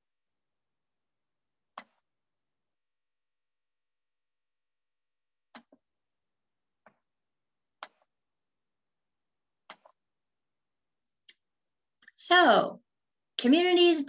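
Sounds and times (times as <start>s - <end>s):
computer mouse clicks: 1.7s - 2.0s, 5.5s - 5.8s, 7.8s - 8.1s, 9.6s - 10.0s.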